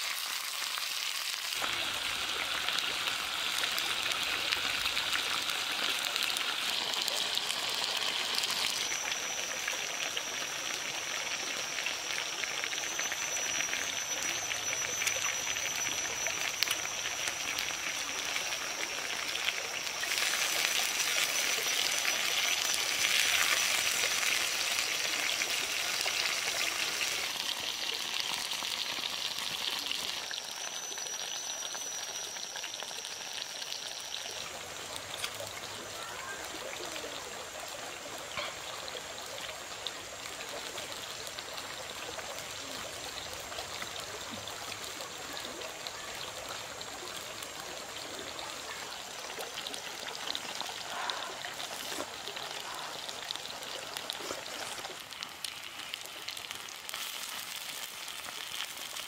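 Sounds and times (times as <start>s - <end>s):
food sizzling in a pan: 0.0s - 59.0s
thin high steady tone: 1.5s - 55.9s.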